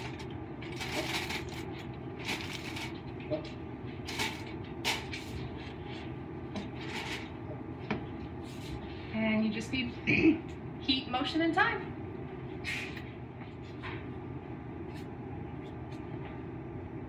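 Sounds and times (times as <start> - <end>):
aluminum foil crinkling: 0.0 - 3.0
low background hum: 0.0 - 17.0.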